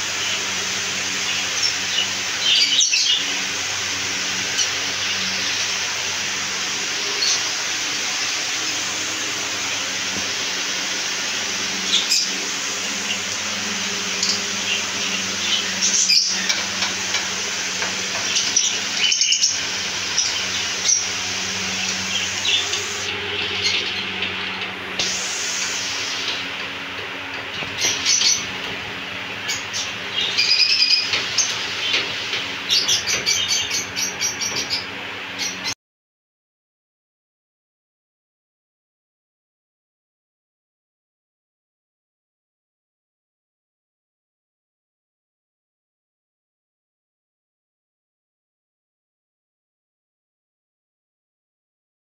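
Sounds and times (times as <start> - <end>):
low hum: 5.1 - 35.7
parrots chirping: 14.1 - 26.5, 27.4 - 35.8.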